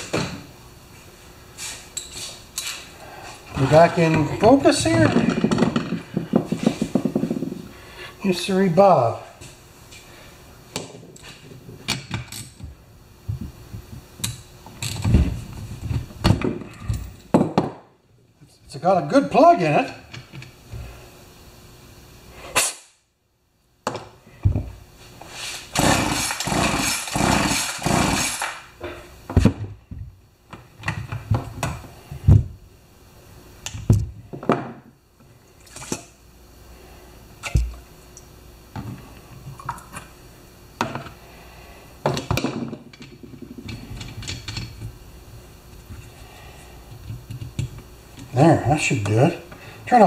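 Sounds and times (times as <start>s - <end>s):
tools and parts clattering: 42.1s - 44.9s.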